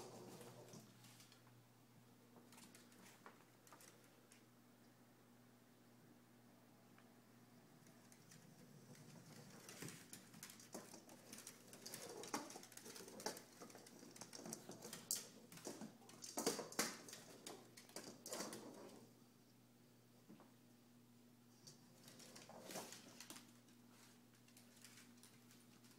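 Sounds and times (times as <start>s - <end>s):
dog claws clicking on wooden floor: 7.9s - 19.0s, 21.6s - 25.9s.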